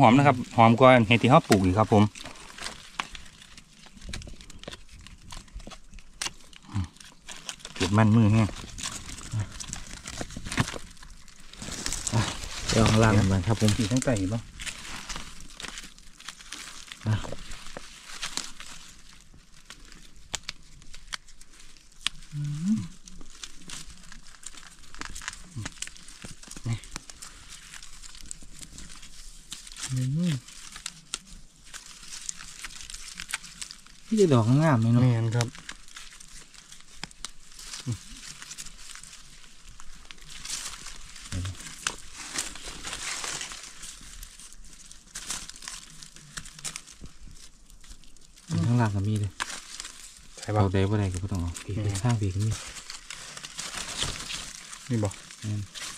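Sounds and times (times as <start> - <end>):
dry leaves and twigs crackling: 0.0 - 55.9
low vocal hum: 6.6 - 7.0, 22.2 - 23.0.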